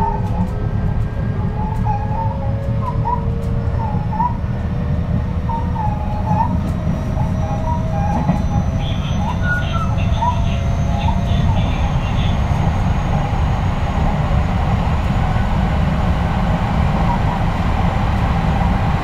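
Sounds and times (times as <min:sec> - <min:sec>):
train wheels rumbling on rails: 0:00.0 - 0:19.0
wavering high squeal: 0:05.4 - 0:13.4.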